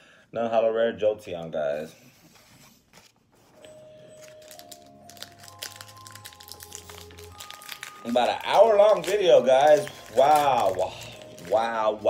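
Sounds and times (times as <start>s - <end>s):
soft background music: 3.4s - 12.0s
foil wrapper crinkling and tearing: 3.6s - 12.0s.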